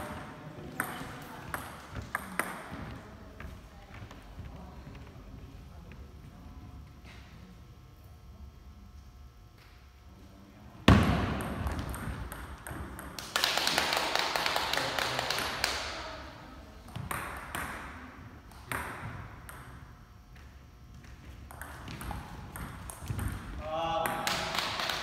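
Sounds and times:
table tennis ball pinging: 0.7s - 2.8s, 10.9s - 13.3s, 21.5s - 25.0s.

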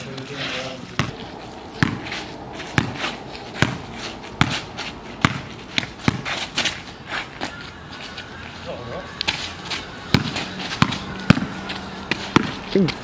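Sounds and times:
basketball bouncing on pavement: 1.0s - 7.6s, 9.3s - 13.0s.

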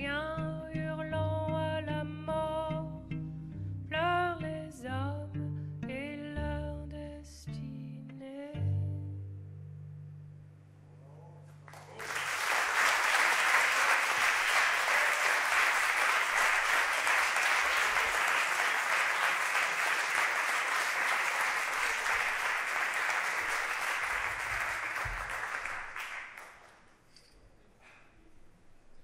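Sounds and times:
audience applauding: 11.6s - 26.9s.

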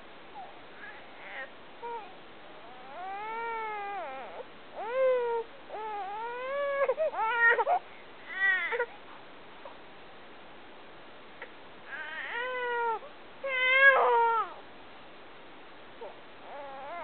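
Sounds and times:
baby crying: 2.7s - 8.9s, 16.0s - 17.0s.

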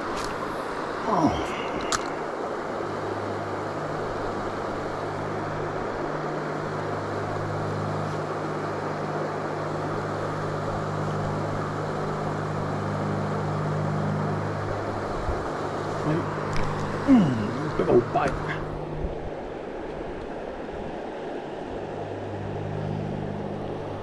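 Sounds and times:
river water rushing over rocks: 0.0s - 12.3s
low hum: 0.0s - 24.0s.

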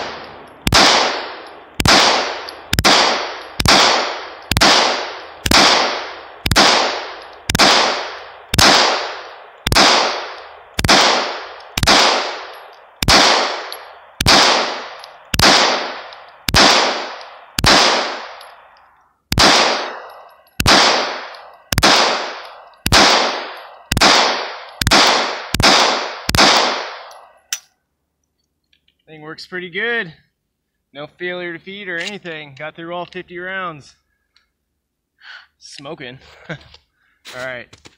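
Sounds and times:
pistol shots echoing: 0.0s - 27.4s.

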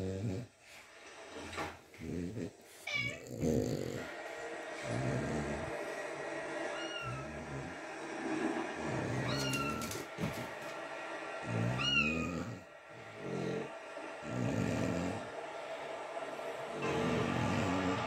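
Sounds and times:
low rough cat sounds: 2.8s - 4.0s, 9.0s - 10.1s, 11.6s - 12.7s
cats meowing through tv speakers: 9.2s - 10.0s.

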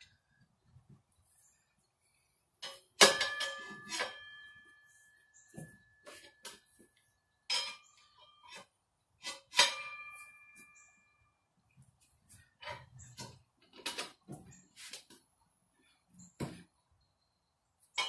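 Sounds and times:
metal tire spoons clinking: 7.5s - 8.6s.

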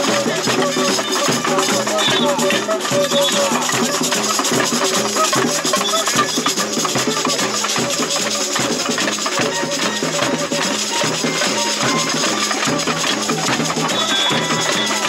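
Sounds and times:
samba percussion band playing: 0.0s - 15.0s.

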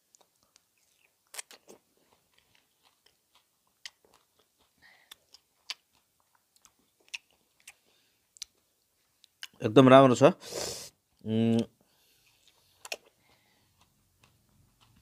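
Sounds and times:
chewing with wet mouth clicks: 0.0s - 9.6s, 11.5s - 15.0s
biting into soft fruit: 0.2s - 7.8s, 12.3s - 15.0s.

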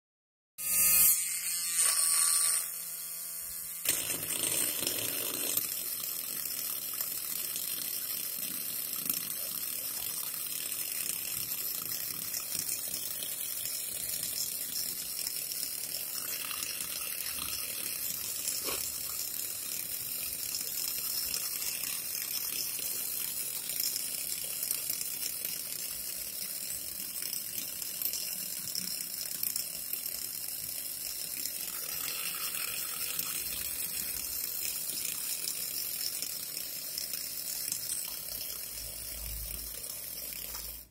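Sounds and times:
small electric motor whirring: 0.6s - 40.9s.

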